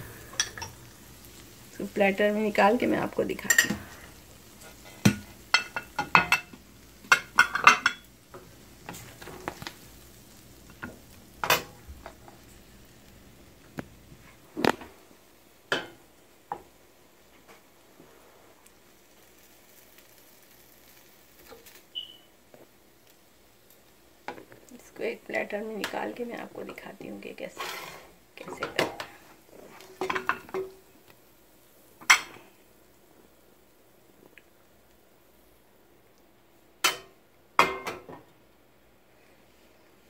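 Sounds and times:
spoon scraping and knocking pan: 0:00.3 - 0:00.8, 0:03.4 - 0:03.9, 0:04.6 - 0:09.6, 0:27.6 - 0:30.8.

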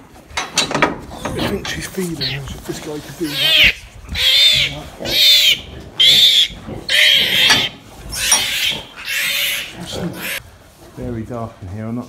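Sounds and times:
piglets squealing: 0:01.2 - 0:10.4.

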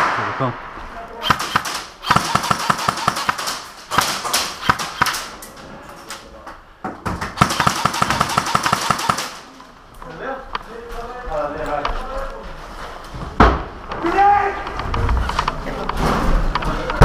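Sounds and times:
airsoft guns firing: 0:01.2 - 0:05.4, 0:07.4 - 0:09.6.

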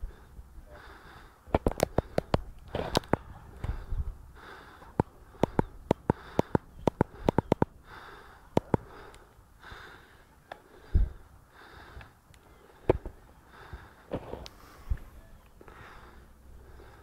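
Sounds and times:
close breathing or sniffing: 0:00.0 - 0:17.0
sharp clicks and knocks: 0:04.9 - 0:07.7.

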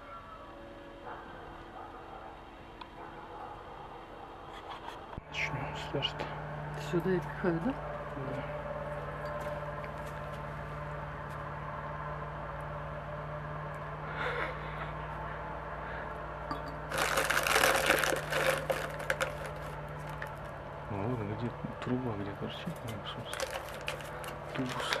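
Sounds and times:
steady low hum: 0:00.0 - 0:25.0
dry rustling and crinkling: 0:16.8 - 0:20.6, 0:22.5 - 0:25.0.

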